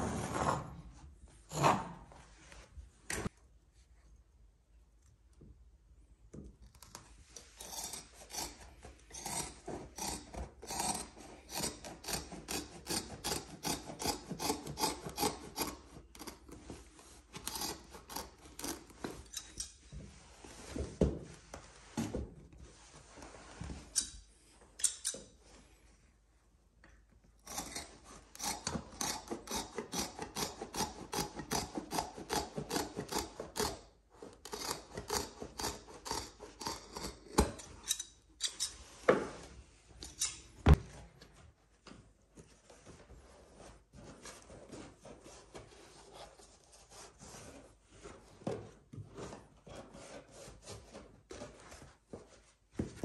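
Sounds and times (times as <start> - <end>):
hand tool rasping on carpet: 7.4 - 19.5, 27.5 - 37.6.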